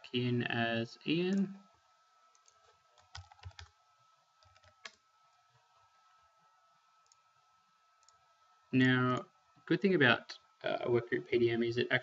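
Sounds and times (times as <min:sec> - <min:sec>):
faint keyboard typing: 0:01.2 - 0:01.6, 0:02.3 - 0:03.8, 0:04.4 - 0:06.2, 0:07.0 - 0:07.2, 0:08.0 - 0:08.2.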